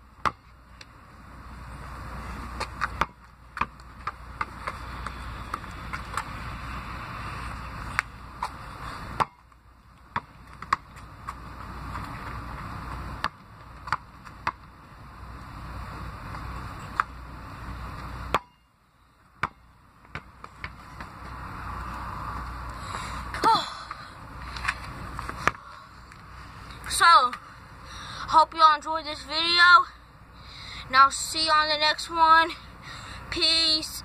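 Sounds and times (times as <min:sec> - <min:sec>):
basketball bouncing on asphalt: 0:00.0 - 0:14.9, 0:15.9 - 0:26.2.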